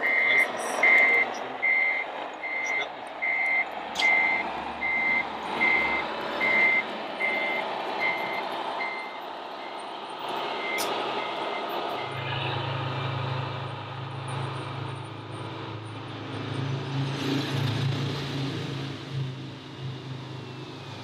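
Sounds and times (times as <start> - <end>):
high reversing beeps: 0.0 - 9.9, 10.6 - 12.6.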